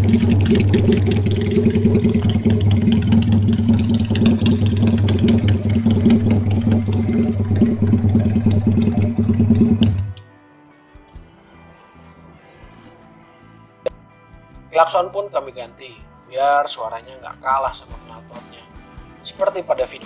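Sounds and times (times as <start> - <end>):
motorcycle engine idling: 0.0 - 10.1.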